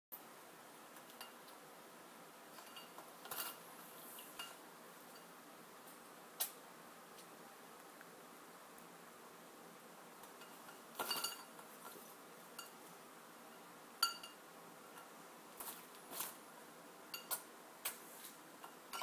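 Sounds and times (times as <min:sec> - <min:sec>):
clink off ceramic bowl: 0:10.4 - 0:11.5, 0:14.0 - 0:14.4.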